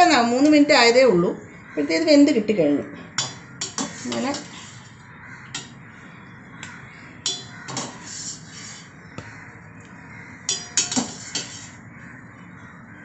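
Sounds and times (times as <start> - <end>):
metal utensils clinking on pot: 3.2 - 4.7, 5.5 - 5.8, 7.2 - 8.4, 10.5 - 11.7.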